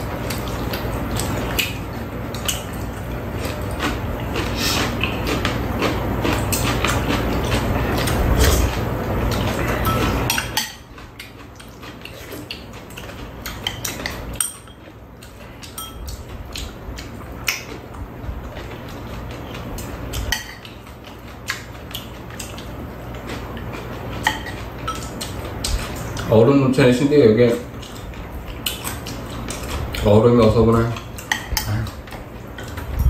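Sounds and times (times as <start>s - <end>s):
steady background hum: 0.0s - 33.0s
utensils clinking against bowls: 9.3s - 15.0s, 15.6s - 16.3s, 20.1s - 20.7s, 24.1s - 28.0s, 28.6s - 32.8s.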